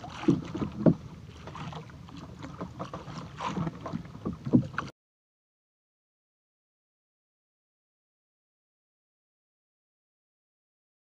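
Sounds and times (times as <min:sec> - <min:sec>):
water noise: 0:00.0 - 0:04.9.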